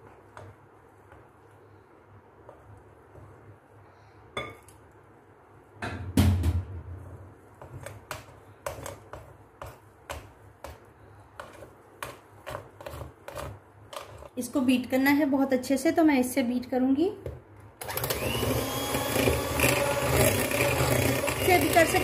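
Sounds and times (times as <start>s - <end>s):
glass clink: 4.4s - 4.7s.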